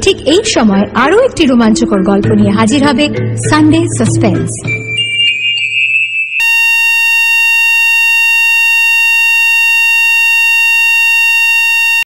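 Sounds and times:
steady electronic beep tone: 4.8 - 12.0.

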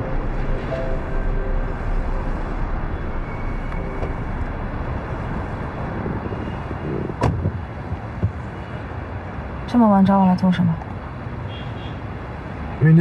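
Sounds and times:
city street traffic: 0.0 - 13.0
car door shutting: 7.0 - 7.6.

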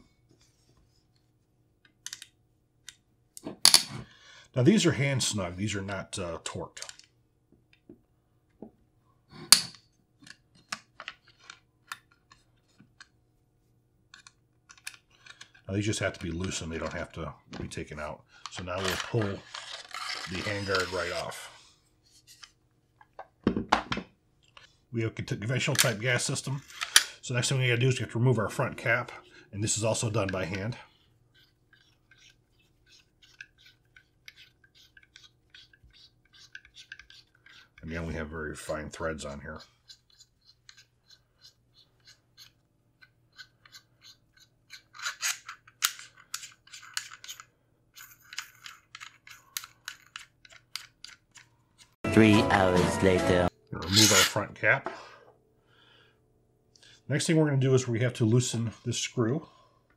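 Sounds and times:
clicking and scraping of threads: 18.4 - 21.4, 30.2 - 38.0, 39.6 - 52.0.

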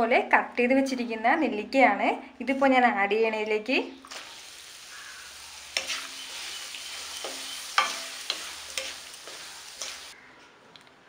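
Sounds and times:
fruit sizzling in oil: 4.0 - 10.2
spatula knocking and scraping pan: 5.7 - 10.2.

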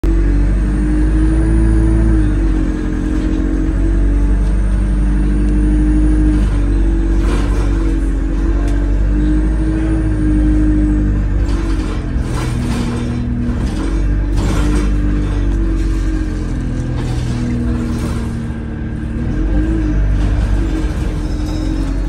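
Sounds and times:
bus engine drone: 0.0 - 22.0
bus body rattles: 6.0 - 22.0.

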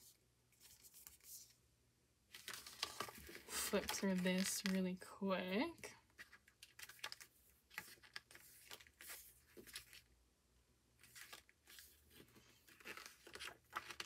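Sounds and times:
paper pages flipping: 2.3 - 4.8, 6.1 - 10.1, 11.0 - 14.0.

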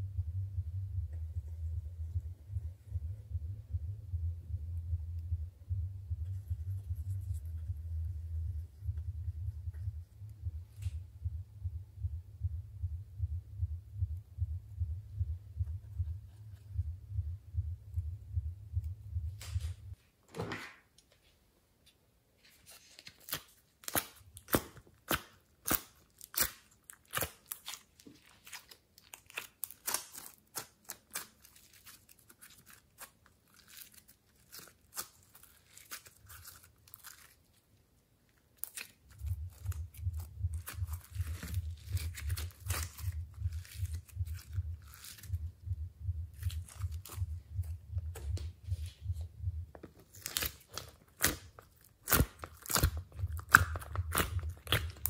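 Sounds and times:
low rhythmic throb: 0.0 - 20.0, 39.2 - 49.9
slime crackling and popping: 23.1 - 37.6, 38.6 - 45.3, 46.4 - 47.2, 50.0 - 55.0.

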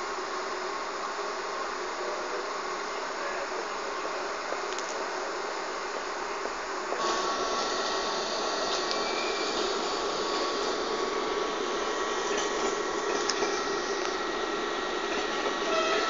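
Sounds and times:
electric train rushing: 6.9 - 16.0
train whining tones: 6.9 - 16.0.

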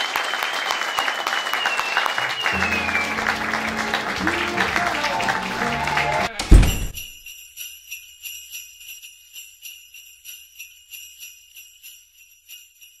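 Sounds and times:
jingle bells shaken: 2.6 - 13.0
deep thump: 6.5 - 7.1.

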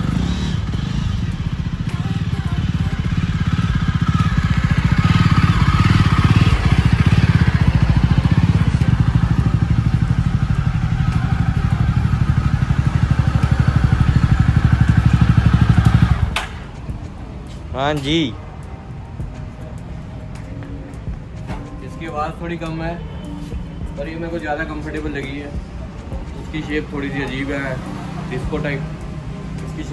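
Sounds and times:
motorcycle engine running: 0.0 - 17.4.

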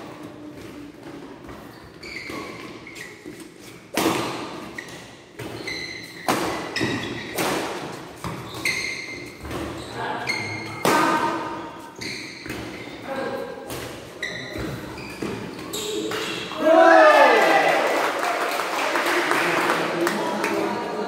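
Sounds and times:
shoe squeaks: 0.2 - 7.4, 8.2 - 13.4, 14.0 - 16.6.

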